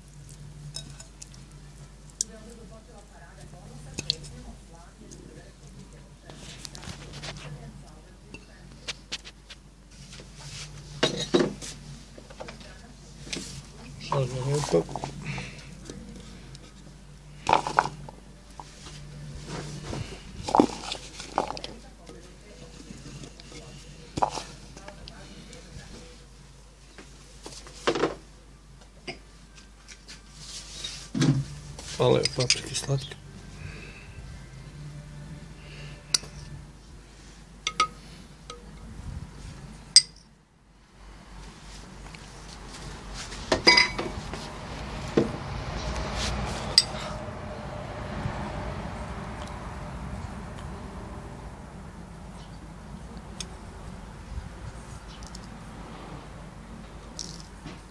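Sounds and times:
low steady hum: 0:00.0 - 0:27.4, 0:28.3 - 0:55.8
metal spoon clinking on dishes: 0:00.7 - 0:01.3, 0:37.7 - 0:38.9, 0:43.7 - 0:44.0.

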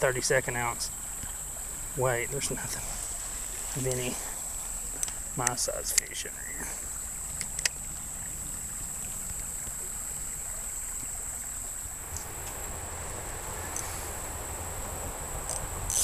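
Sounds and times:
faint ticks: 0:04.8 - 0:07.8, 0:12.1 - 0:14.0, 0:15.4 - 0:16.0
road traffic rumble: 0:11.8 - 0:16.0
high-pitched insect drone: 0:12.0 - 0:16.0.

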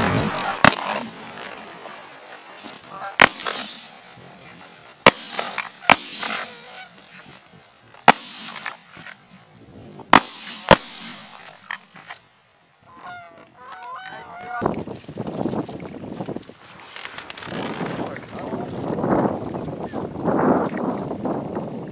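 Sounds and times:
shotgun shots: 0:00.0 - 0:01.7, 0:03.2 - 0:04.3, 0:05.0 - 0:07.1, 0:08.1 - 0:09.2, 0:10.1 - 0:11.8.

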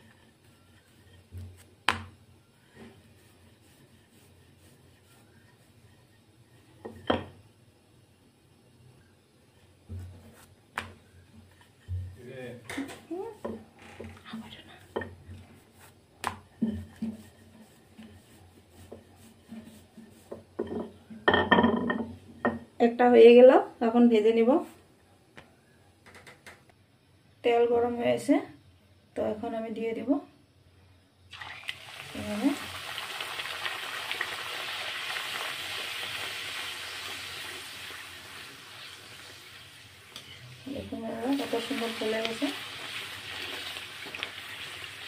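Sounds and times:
rolling pin on dough knocking: 0:00.0 - 0:06.1, 0:09.8 - 0:13.8, 0:14.8 - 0:22.7
dough deep-frying in oil: 0:00.0 - 0:13.8, 0:14.4 - 0:22.8, 0:31.3 - 0:45.0.

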